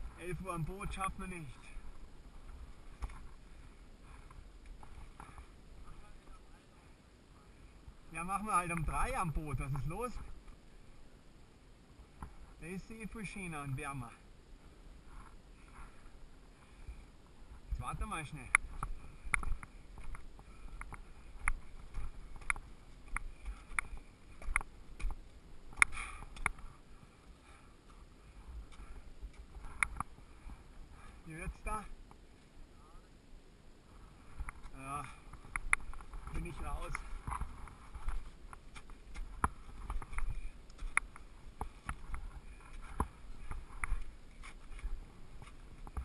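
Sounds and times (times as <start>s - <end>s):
ski boots clicking on rock: 18.5s - 26.8s, 34.4s - 46.0s.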